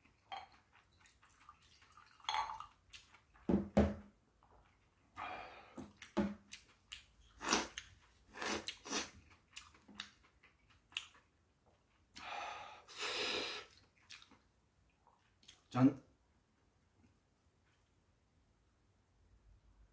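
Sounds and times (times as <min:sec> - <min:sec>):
chewing: 0:00.0 - 0:03.5, 0:04.4 - 0:05.2, 0:05.8 - 0:12.3, 0:13.6 - 0:15.7
person breathing: 0:05.2 - 0:05.9, 0:12.2 - 0:13.7.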